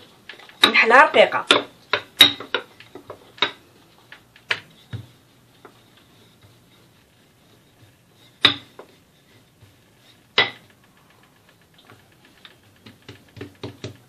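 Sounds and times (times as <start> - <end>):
rolling pin rolling dough: 0.0 - 14.0
sharp knocks: 8.4 - 8.9
light taps on dough: 12.8 - 14.0.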